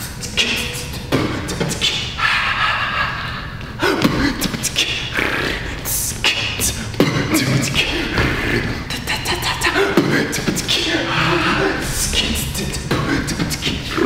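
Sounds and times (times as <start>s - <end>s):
man beatboxing: 0.0s - 14.0s.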